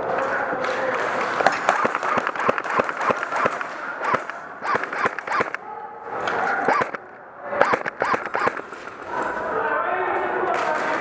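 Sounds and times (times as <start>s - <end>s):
airsoft gun shots echoing: 1.4s - 5.6s, 6.7s - 7.0s, 7.6s - 8.7s.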